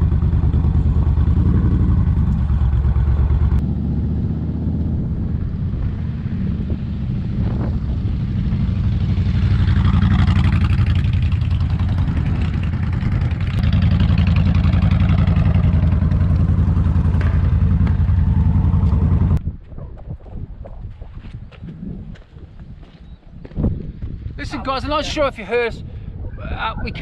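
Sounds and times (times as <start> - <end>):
motorcycle passing close: 0.0 - 19.4
motorcycle engines pulsing: 0.0 - 19.7.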